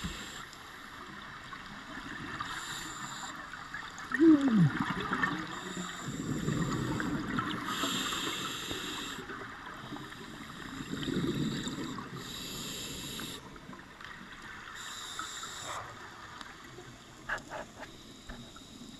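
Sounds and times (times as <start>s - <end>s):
exhaled air bubbling: 4.0s - 9.6s
regulator inhalation hiss: 7.7s - 9.3s, 10.2s - 13.5s, 14.8s - 15.7s.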